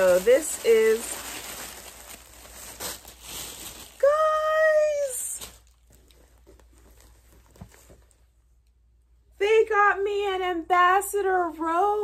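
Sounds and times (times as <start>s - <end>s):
plastic wrapping rustling: 0.0s - 8.4s
woman saying ooh: 4.0s - 5.4s.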